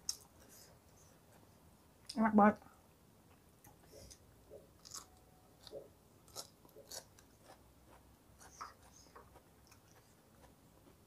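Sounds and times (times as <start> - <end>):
person chewing with crunches: 4.8 - 11.0.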